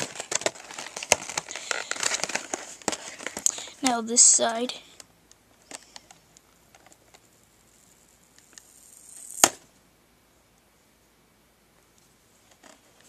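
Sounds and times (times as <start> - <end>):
plastic scraping: 0.0 - 4.0
plastic packaging clicking and crinkling: 0.0 - 7.2.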